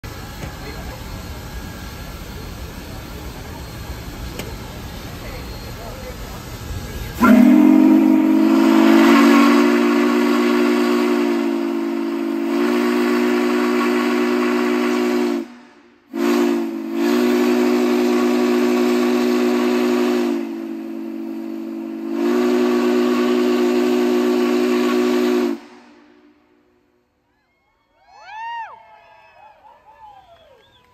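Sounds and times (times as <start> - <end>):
steam hissing: 0.0 - 26.5
steam whistle chord: 7.1 - 26.8.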